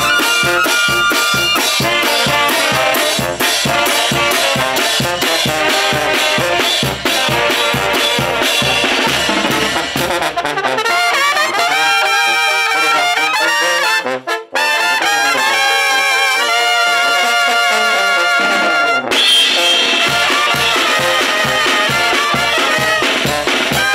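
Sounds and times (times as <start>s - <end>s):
steady beat: 0.0s - 10.5s
brass band playing: 0.0s - 23.9s.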